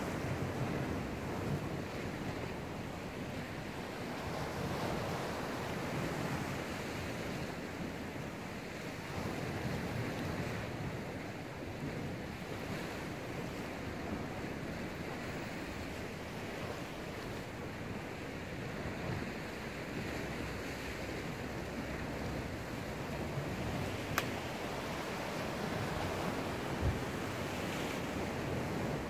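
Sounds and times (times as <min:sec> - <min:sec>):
surf washing against rocks: 0:11.9 - 0:29.0.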